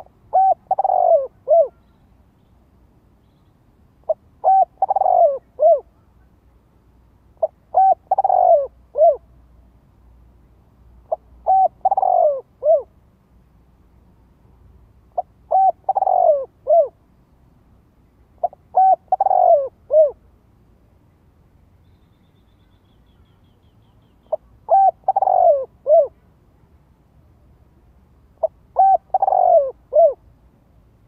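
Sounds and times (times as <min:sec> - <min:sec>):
dove cooing: 0:00.0 - 0:01.9, 0:04.1 - 0:05.9, 0:07.4 - 0:09.2, 0:11.1 - 0:12.9, 0:15.2 - 0:17.0, 0:18.4 - 0:20.2, 0:24.2 - 0:26.3, 0:28.4 - 0:30.2.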